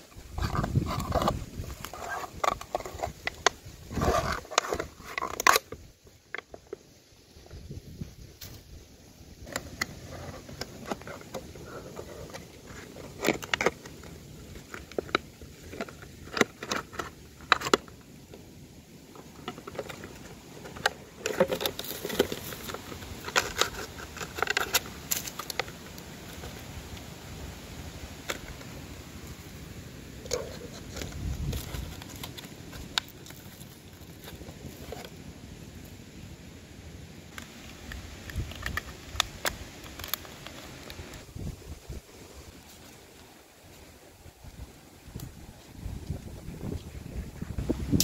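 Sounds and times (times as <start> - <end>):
plastic bottle crinkling: 19.2 - 27.0, 30.2 - 35.1.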